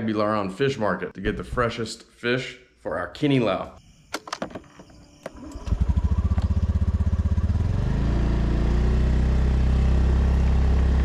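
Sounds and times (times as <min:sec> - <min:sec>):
vehicle engine running: 0:05.4 - 0:11.0.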